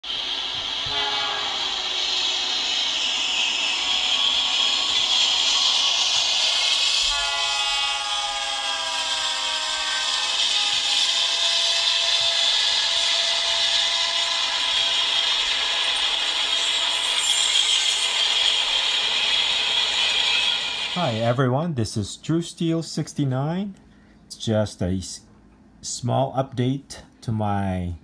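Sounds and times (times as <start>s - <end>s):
train running with hiss: 0.0s - 23.4s
train horn blast: 0.8s - 2.5s, 7.0s - 15.2s.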